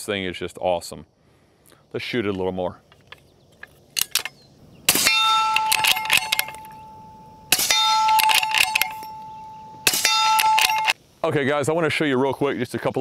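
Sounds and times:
suppressed rifle shots: 4.0 - 6.8, 7.5 - 9.2, 9.8 - 11.0
steel target ringing: 4.9 - 11.0.

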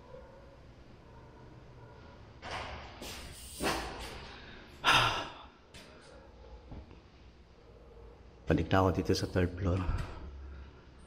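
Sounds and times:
man breathing heavily: 4.0 - 6.8.

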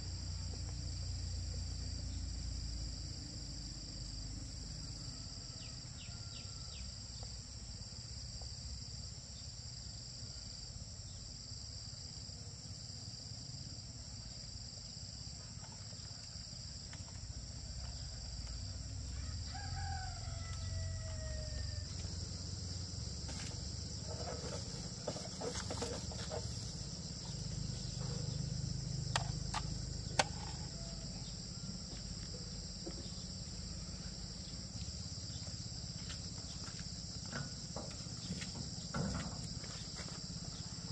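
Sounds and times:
insects chirring: 0.0 - 40.9
rooster crowing: 19.1 - 22.2, 30.2 - 32.0.

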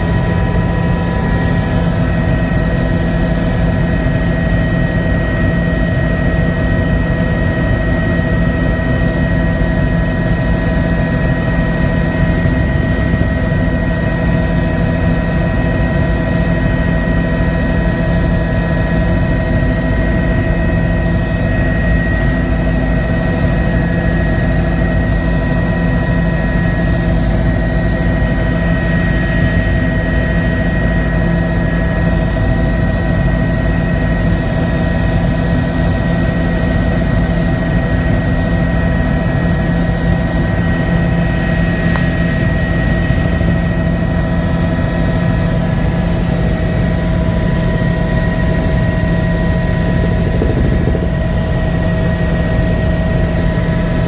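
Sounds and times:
helicopter engine and rotors rumble: 0.0 - 54.0
turbine whine: 0.0 - 54.0.

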